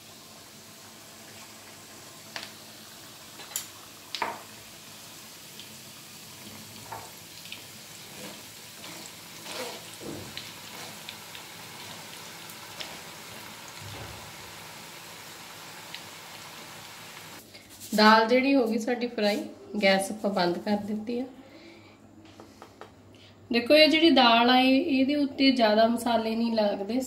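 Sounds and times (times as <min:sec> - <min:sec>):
lentils sizzling in hot oil: 0:00.0 - 0:17.4.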